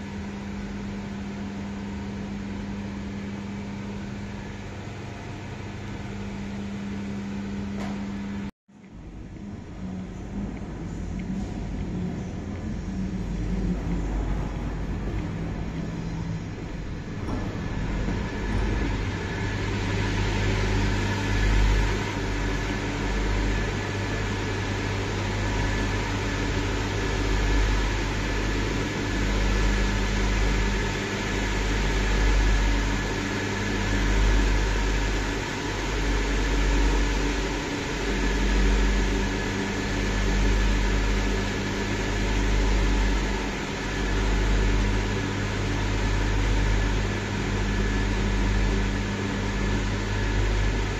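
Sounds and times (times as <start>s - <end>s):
blower fans whirring hum: 0.0s - 50.9s
low rumble: 8.9s - 24.8s.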